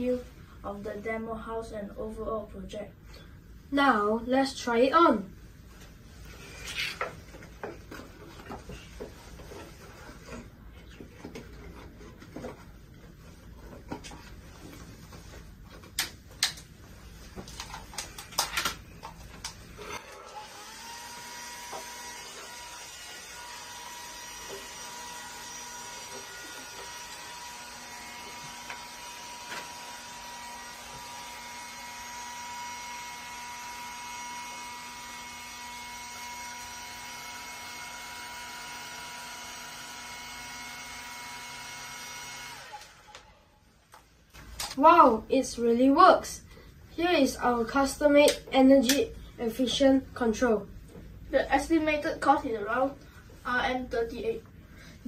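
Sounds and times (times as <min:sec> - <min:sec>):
hair dryer blowing: 0:20.0 - 0:43.5.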